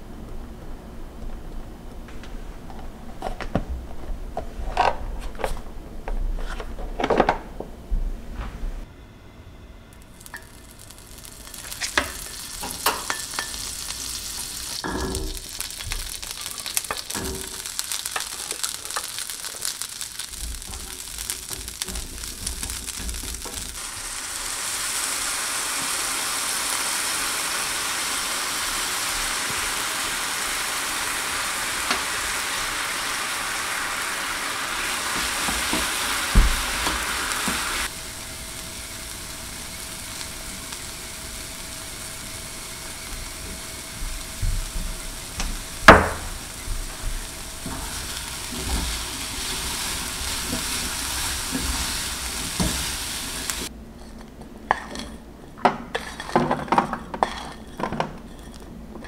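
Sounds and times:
chickpeas sizzling in a pan: 0:09.9 - 0:53.7, 0:55.8 - 0:58.6
wooden spoon stirring: 0:14.7 - 0:23.8, 0:54.0 - 0:58.7.

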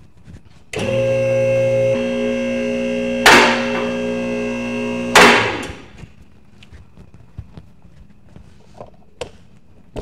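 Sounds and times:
hydraulic pump motor humming: 0:00.7 - 0:06.0
sudden loud sharp noise: 0:05.1 - 0:05.9.

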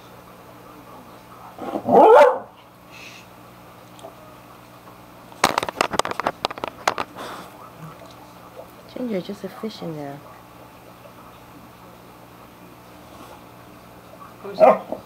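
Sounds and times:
dog barking: 0:01.8 - 0:02.6, 0:14.5 - 0:15.0
sharp knocks and rattles: 0:05.4 - 0:07.1.

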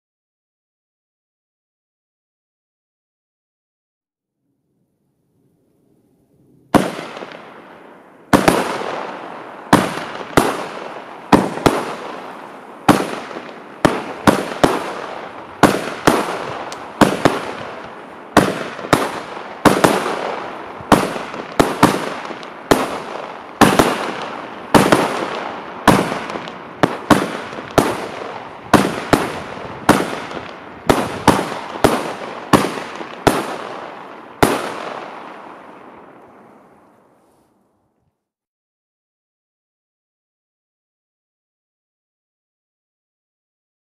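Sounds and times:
fireworks banging: 0:06.6 - 0:36.6.

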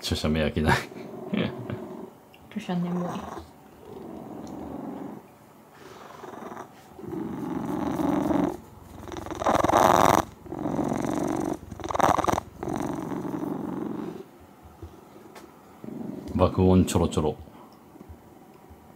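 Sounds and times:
cat purring loudly: 0:00.7 - 0:02.1, 0:02.9 - 0:14.3, 0:15.8 - 0:16.4.

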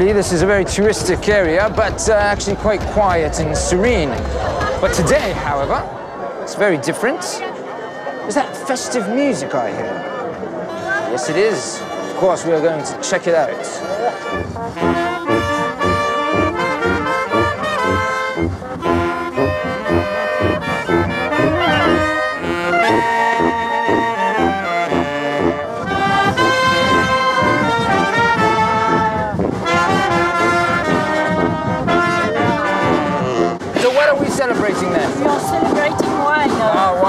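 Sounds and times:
sousaphone bass notes: 0:00.0 - 0:06.1, 0:14.3 - 0:25.6
brass band playing: 0:00.0 - 0:06.2, 0:13.8 - 0:37.0.

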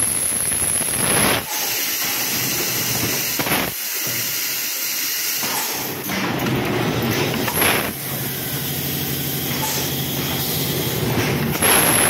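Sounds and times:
compressed air hiss: 0:01.4 - 0:06.0.

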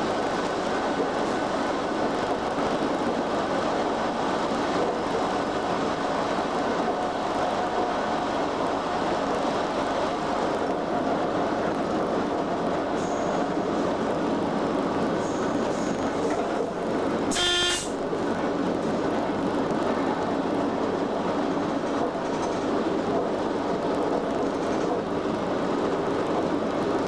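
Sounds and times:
train wheels running on rail: 0:00.0 - 0:27.0.

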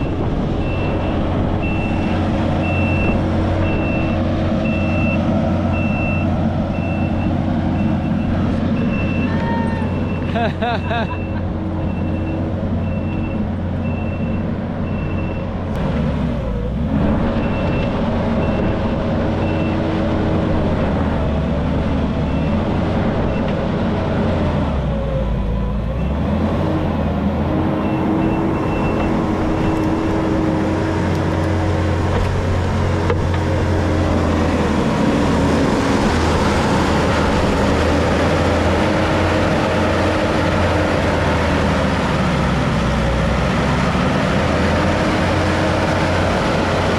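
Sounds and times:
backup alarm beeping: 0:00.0 - 0:05.2
construction machine engine running: 0:00.0 - 0:46.9.

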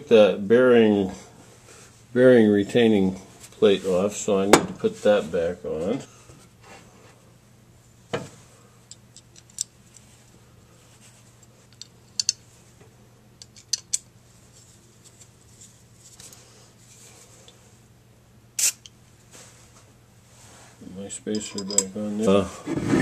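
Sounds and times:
faint steady hum: 0:00.0 - 0:23.0
metal parts clicking and knocking: 0:08.9 - 0:09.7, 0:11.7 - 0:12.4, 0:13.4 - 0:14.1, 0:21.3 - 0:21.9.

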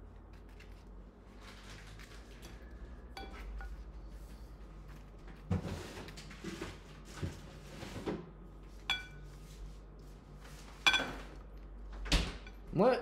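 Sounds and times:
paper rustling: 0:00.1 - 0:02.8
tongs clinking against bowl: 0:08.9 - 0:09.2.

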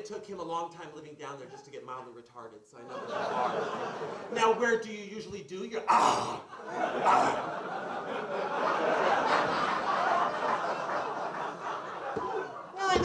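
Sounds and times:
audience laughing: 0:02.8 - 0:04.6, 0:06.5 - 0:13.0.

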